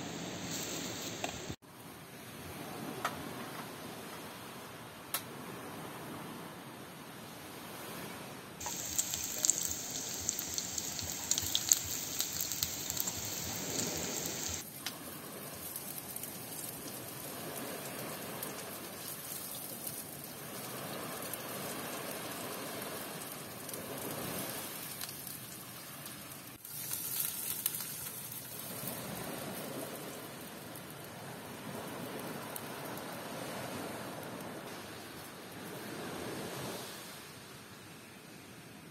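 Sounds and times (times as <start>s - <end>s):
food sizzling in a frying pan: 8.6s - 14.6s, 26.6s - 29.0s.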